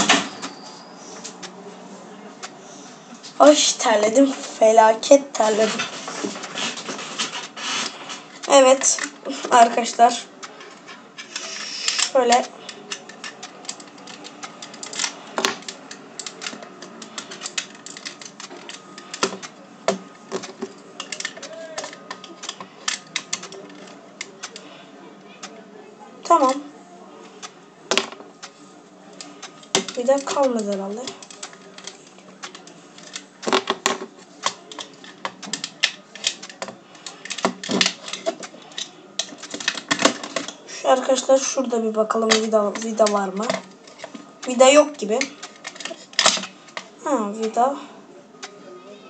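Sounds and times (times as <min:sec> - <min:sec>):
pistol parts clicking: 0:10.6 - 0:19.6, 0:20.3 - 0:24.7, 0:29.2 - 0:40.6, 0:45.2 - 0:46.8.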